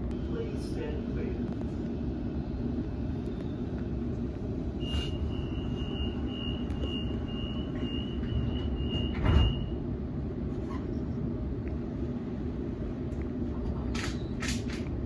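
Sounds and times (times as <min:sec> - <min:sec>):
low train equipment hum: 0:00.0 - 0:15.0
train door warning beeps: 0:04.7 - 0:09.8.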